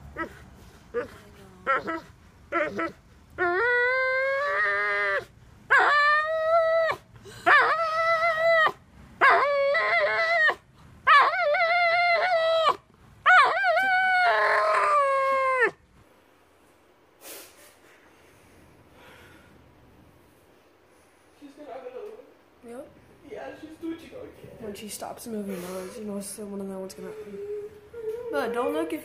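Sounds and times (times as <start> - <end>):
dog howling cries: 1.7 - 15.8, 27.2 - 29.0.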